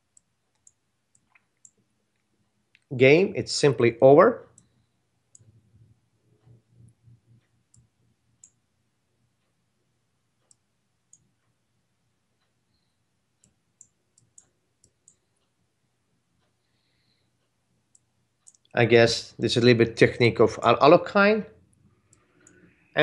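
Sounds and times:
computer mouse clicks: 0.1s - 2.9s, 4.5s - 5.6s, 6.4s - 8.6s, 12.4s - 15.5s, 17.9s - 18.7s, 21.7s - 22.9s.

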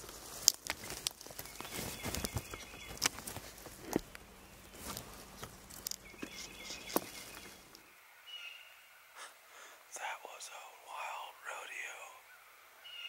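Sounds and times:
footsteps crunching through leaves: 0.0s - 7.8s
songbird calling: 0.8s - 13.0s.

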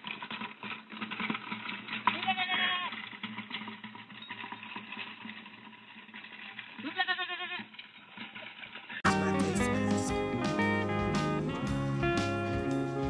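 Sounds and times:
goat bleating: 2.2s - 2.9s, 6.8s - 7.7s.

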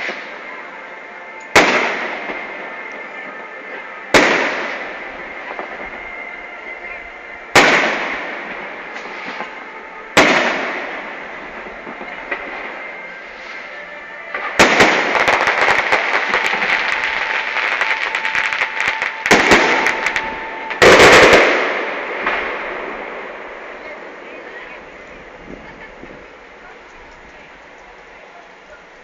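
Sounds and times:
firework bangs with echo: 1.5s - 2.9s, 3.7s - 6.0s, 7.5s - 23.8s
rapid crackling firework pops: 14.4s - 22.4s.

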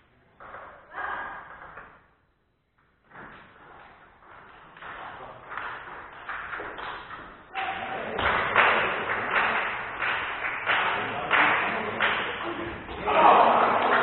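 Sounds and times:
ping pong ball hitting rackets: 4.3s - 9.6s.

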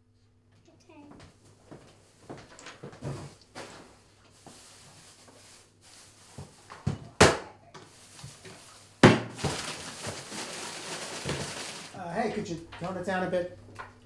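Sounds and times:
rustling hiss: 3.2s - 6.9s
hard objects knocked and set down: 9.0s - 12.0s.

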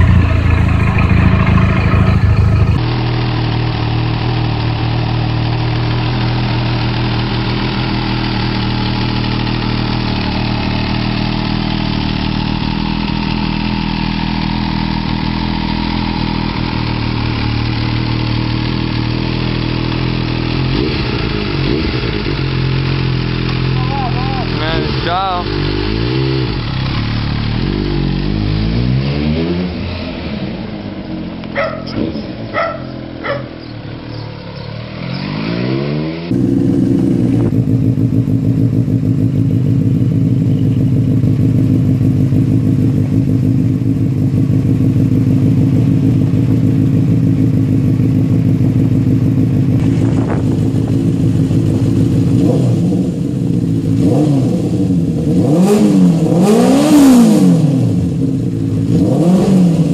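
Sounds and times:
exhaust cracks: 0.0s - 3.1s, 49.3s - 52.4s
loud motorcycle engine running: 0.0s - 59.9s
motorcycle engine revving: 0.0s - 59.9s.

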